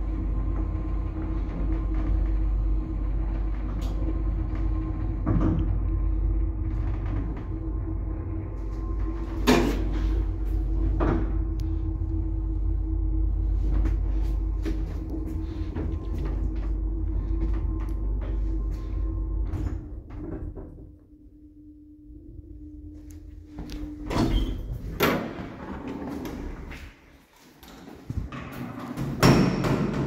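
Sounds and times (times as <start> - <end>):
lift doors clunking and banging: 0.0 - 21.0, 23.7 - 26.9, 27.8 - 30.0
lift motor hum: 0.0 - 30.0.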